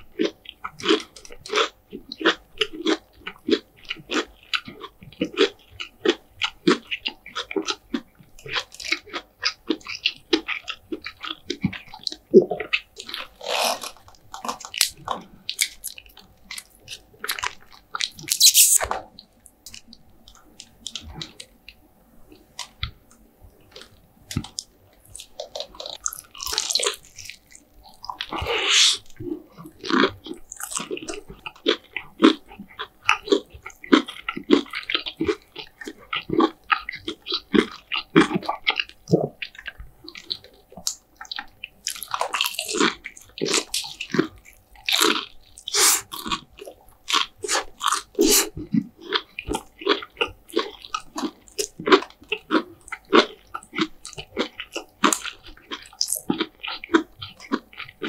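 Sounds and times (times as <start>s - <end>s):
crunchy chewing: 0.2s - 18.9s, 22.3s - 58.0s.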